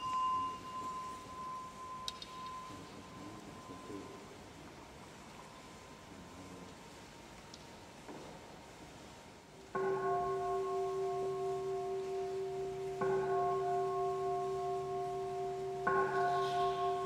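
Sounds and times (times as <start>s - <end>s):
bowl bell ringing: 0.0s - 4.3s, 9.8s - 17.0s.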